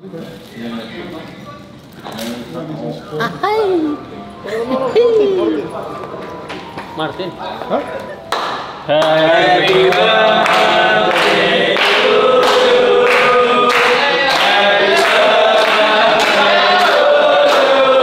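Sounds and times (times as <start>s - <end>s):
voices singing together: 8.7s - 18.0s.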